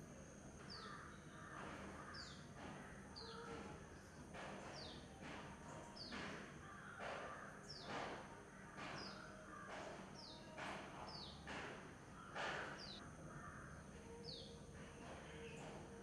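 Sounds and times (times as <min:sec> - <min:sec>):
crows cawing: 0:00.7 - 0:03.4, 0:06.6 - 0:07.6, 0:09.1 - 0:09.9, 0:12.2 - 0:13.8.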